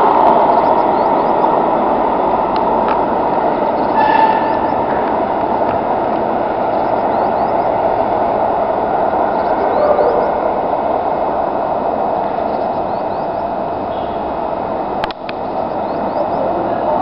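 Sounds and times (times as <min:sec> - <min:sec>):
train rolling past: 0:00.0 - 0:17.0.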